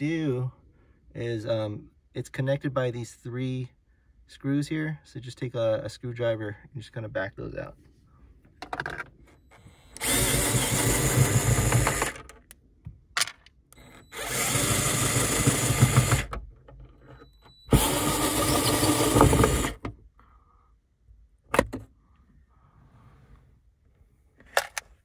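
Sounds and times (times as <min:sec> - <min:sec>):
cordless driver running: 0:09.5 - 0:12.4, 0:13.8 - 0:16.4, 0:17.6 - 0:19.8.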